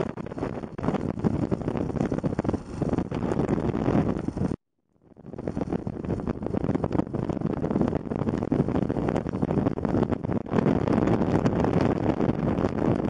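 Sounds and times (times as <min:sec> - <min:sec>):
motorcycle engine running: 0:00.0 - 0:04.6
wind buffeting microphone: 0:00.0 - 0:13.0.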